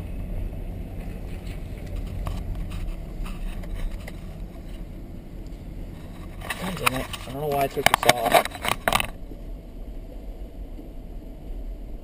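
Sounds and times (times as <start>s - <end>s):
vehicle engine idling: 0.0s - 12.0s
light clicks and knocks: 5.4s - 9.2s.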